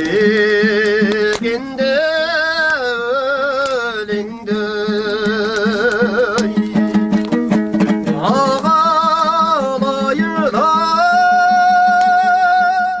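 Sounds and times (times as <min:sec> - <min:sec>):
person singing with vibrato: 0:00.0 - 0:07.0, 0:07.8 - 0:13.0
plucked lute strokes: 0:00.0 - 0:12.9.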